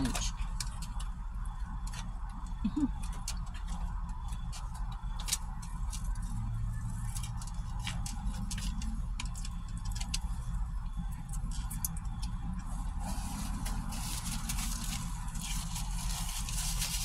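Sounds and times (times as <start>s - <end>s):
steady low hum: 0.0s - 17.0s
paper packaging rustling: 12.8s - 17.0s.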